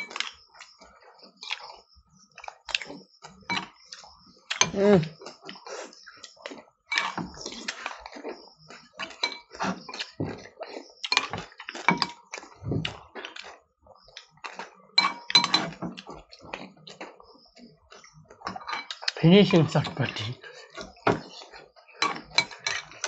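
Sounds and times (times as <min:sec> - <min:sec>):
spoons clinking on glass bowls: 0:15.0 - 0:15.7.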